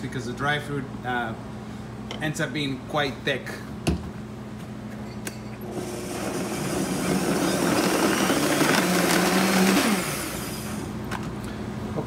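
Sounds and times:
blender motor running: 5.6s - 11.0s.

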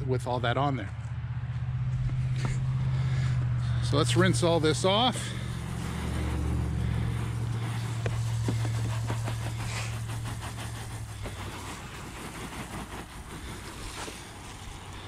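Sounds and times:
low engine hum: 0.0s - 15.0s
hose spraying water: 4.0s - 15.0s.

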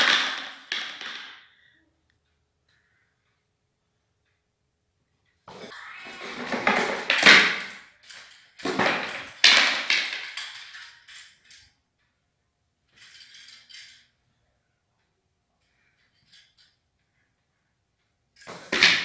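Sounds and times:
metal chain rattling and clinking: 12.9s - 14.1s.

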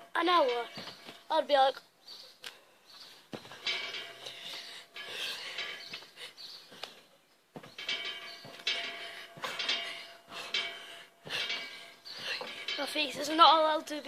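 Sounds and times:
metal springs squeaking: 0.1s - 1.3s, 3.4s - 7.0s, 7.6s - 14.0s
trampoline mat thumps: 7.6s - 13.8s.

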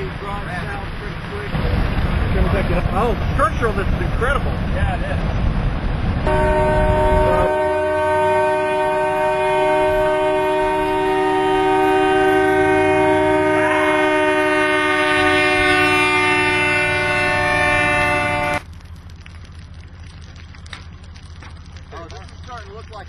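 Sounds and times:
horn sounding a chord: 6.3s - 18.6s.

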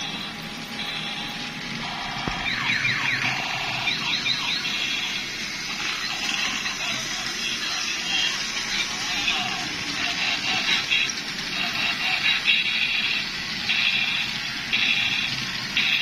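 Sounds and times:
toy electronic beeps: 0.0s - 5.2s
toy electronic siren sweeps: 0.0s - 16.0s.

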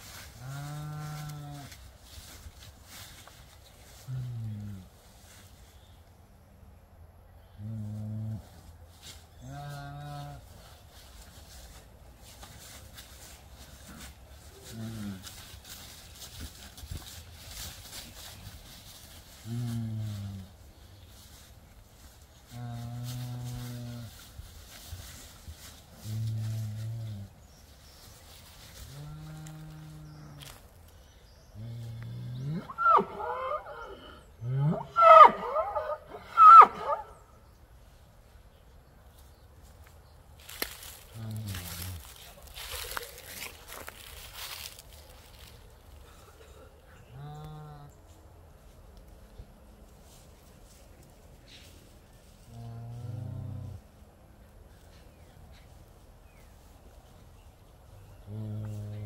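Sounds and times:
bull bellowing: 0.4s - 1.8s, 22.5s - 24.2s, 31.6s - 37.2s.

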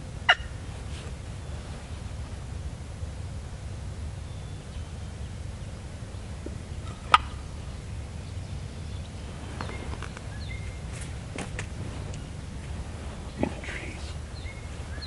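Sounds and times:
turkey gobbling: 0.2s - 0.7s, 6.4s - 8.2s.

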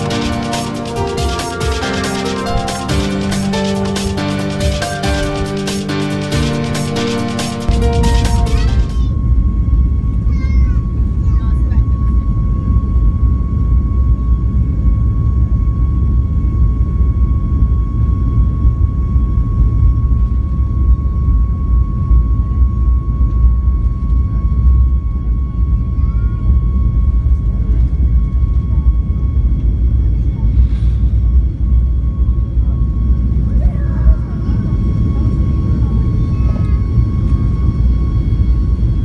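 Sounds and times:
jet engines rumbling: 0.0s - 12.7s, 25.1s - 39.0s
high engine whine: 0.0s - 39.0s.

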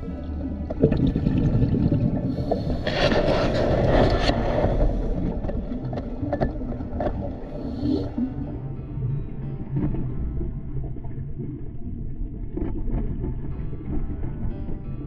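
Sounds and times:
scuba bubbles hissing: 0.0s - 8.7s
underwater water rumble: 0.0s - 15.0s.

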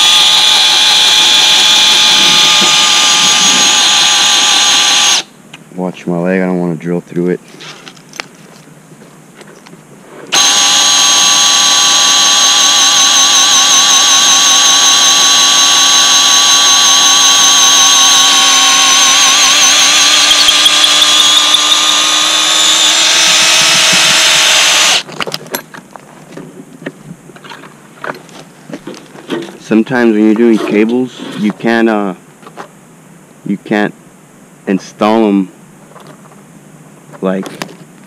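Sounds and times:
cordless drill boring wood: 0.0s - 5.3s, 10.3s - 25.1s.

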